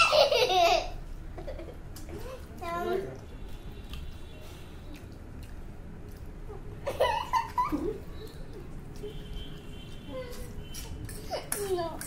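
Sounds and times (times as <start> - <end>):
girl giggling: 0.0 - 1.8, 6.9 - 8.4
low room noise: 0.0 - 12.0.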